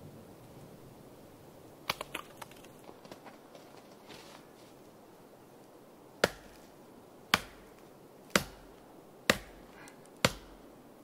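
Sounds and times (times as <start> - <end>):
knife chopping dry wood: 6.2 - 6.7, 7.3 - 10.6.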